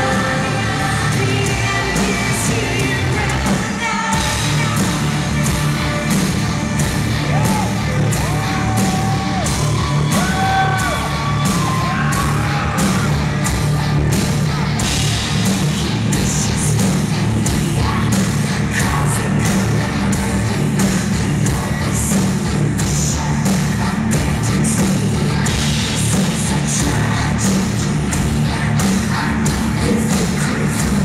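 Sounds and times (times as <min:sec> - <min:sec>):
person singing: 0:00.0 - 0:06.4, 0:15.6 - 0:31.0
electric guitar: 0:00.0 - 0:31.0
live rock band playing: 0:00.0 - 0:31.0
steady drum beat: 0:00.0 - 0:31.0.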